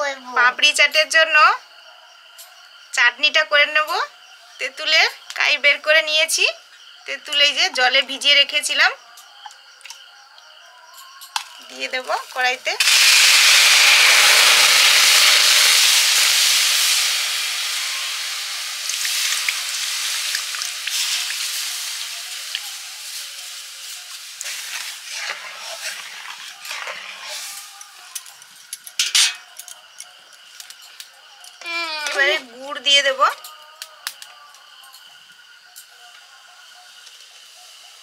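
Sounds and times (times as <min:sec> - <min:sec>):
liquid sizzling in a hot pan: 0:11.4 - 0:31.1, 0:36.5 - 0:38.0.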